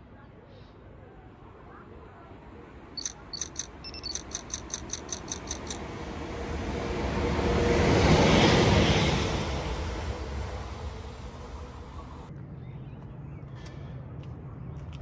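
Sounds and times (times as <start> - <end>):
freight train rumble: 0.0 - 12.4
short high chirps: 3.0 - 5.8.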